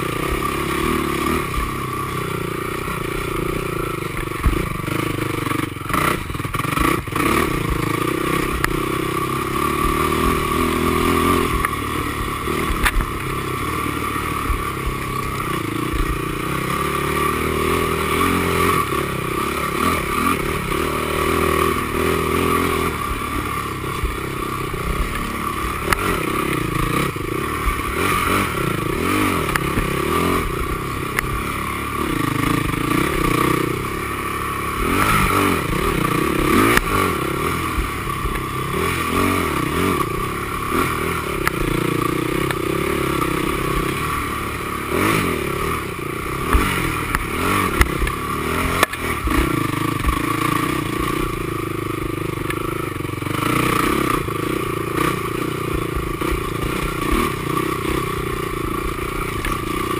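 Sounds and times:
knocks and clatter over rough ground: 0:00.0 - 0:59.9
quad engine revving: 0:00.0 - 0:59.9.

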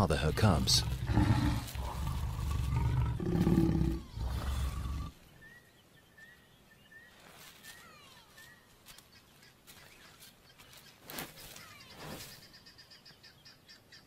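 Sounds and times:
lions growling and snarling: 0:00.3 - 0:05.2
faint bird chirps: 0:03.7 - 0:14.0.

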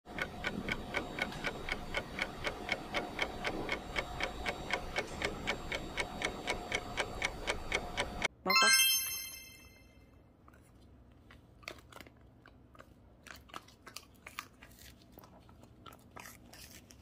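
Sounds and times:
clock ticking: 0:00.1 - 0:08.3.

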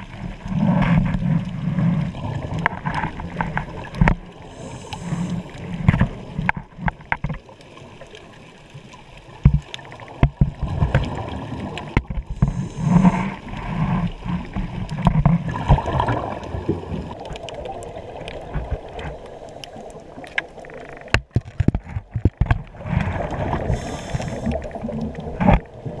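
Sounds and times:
regulator hissing inhales: 0:04.4 - 0:05.5, 0:12.3 - 0:13.4, 0:23.6 - 0:24.6
sharp clicks and knocks: 0:05.8 - 0:07.4, 0:09.4 - 0:11.1, 0:11.9 - 0:12.6, 0:20.2 - 0:22.7
bubbling gurgling exhales: 0:22.7 - 0:26.0.

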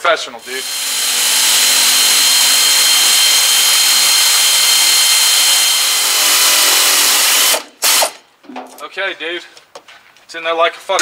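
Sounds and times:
air ratchet whining: 0:00.4 - 0:08.2.

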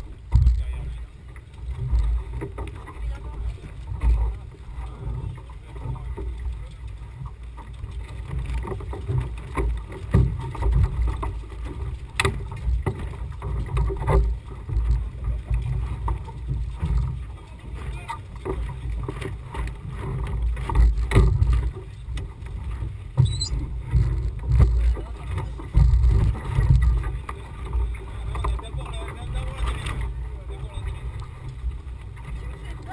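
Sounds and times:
boat knocks and clicks: 0:00.0 - 0:32.9
high squeak: 0:23.2 - 0:23.6.

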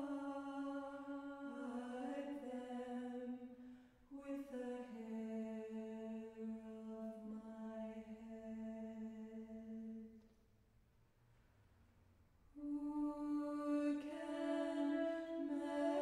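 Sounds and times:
choir singing a cappella: 0:00.0 - 0:03.6, 0:12.6 - 0:16.0.

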